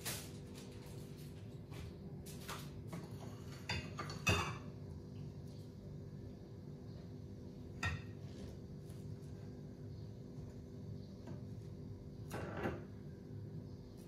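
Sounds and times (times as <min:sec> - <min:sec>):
steady low hum: 0:00.0 - 0:14.0
utensils clinking against a pan: 0:03.1 - 0:04.7.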